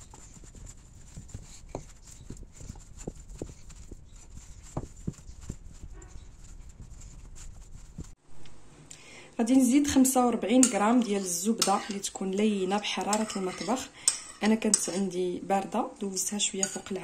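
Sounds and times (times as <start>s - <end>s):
hand kneading dough in a bowl: 0.0s - 8.2s.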